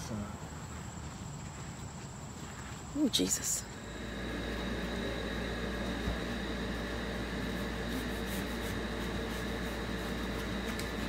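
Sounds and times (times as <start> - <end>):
room hum and hiss: 3.2 - 11.0.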